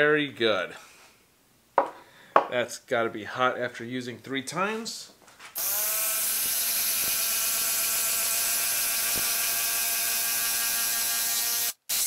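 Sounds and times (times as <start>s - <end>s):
impact driver hammering: 6.3s - 9.6s.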